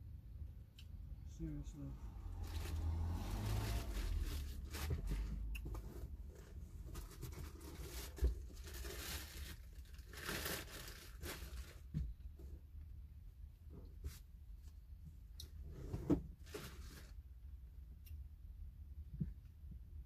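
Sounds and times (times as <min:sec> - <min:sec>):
rustling and crinkling: 0:02.3 - 0:12.7, 0:13.6 - 0:17.2.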